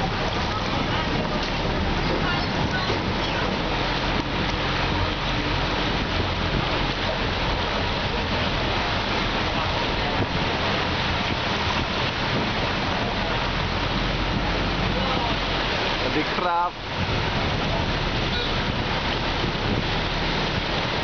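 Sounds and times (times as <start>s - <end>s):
bus engine drone: 0.0s - 16.2s
floodwater rushing and splashing: 0.0s - 21.0s.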